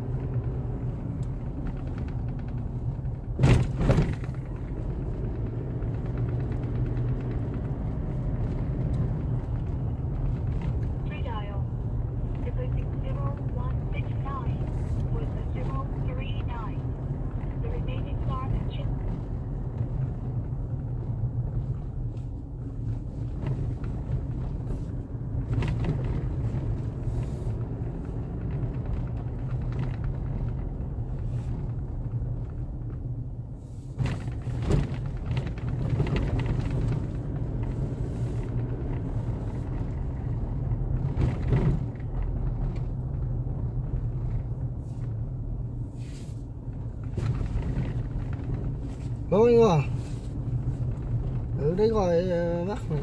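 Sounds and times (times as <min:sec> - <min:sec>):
vehicle engine and road rumble: 0:00.0 - 0:53.0
knocks over bumps: 0:01.4 - 0:04.8.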